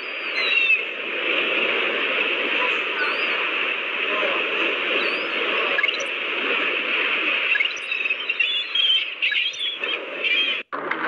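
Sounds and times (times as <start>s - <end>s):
bird chirps: 0.0s - 0.8s, 5.0s - 6.1s, 7.5s - 10.6s
rushing water: 0.0s - 10.6s.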